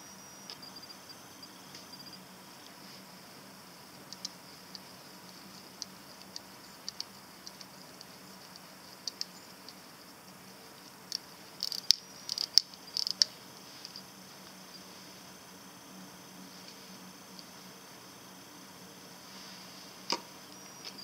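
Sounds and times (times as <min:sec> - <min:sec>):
watch crown clicking: 0:11.1 - 0:14.0.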